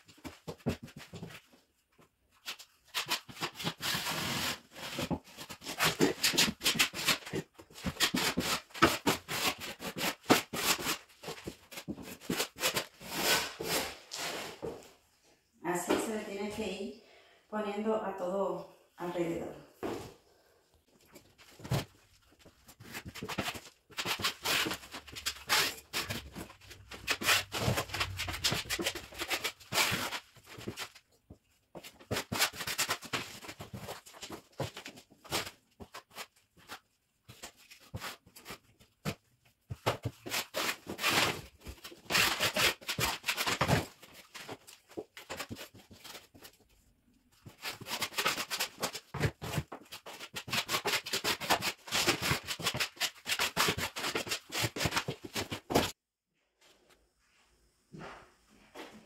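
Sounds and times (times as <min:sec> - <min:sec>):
putty knife scraping drywall: 0:02.4 - 0:14.8, 0:22.7 - 0:31.0, 0:39.7 - 0:46.5, 0:47.5 - 0:56.0.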